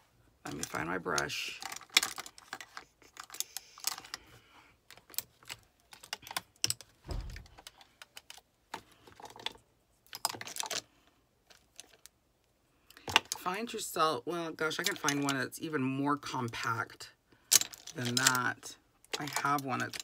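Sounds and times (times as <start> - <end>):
dull bump: 7.1 - 7.6
plastic compacts clicking: 17.5 - 18.4.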